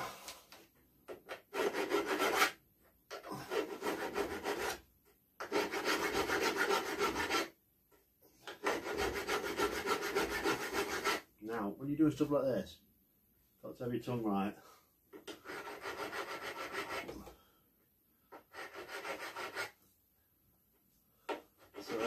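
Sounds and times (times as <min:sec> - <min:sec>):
hand file rasping on metal: 0:01.2 - 0:04.8, 0:05.4 - 0:07.5, 0:08.4 - 0:11.3, 0:15.1 - 0:17.3, 0:18.3 - 0:19.8, 0:21.3 - 0:22.0.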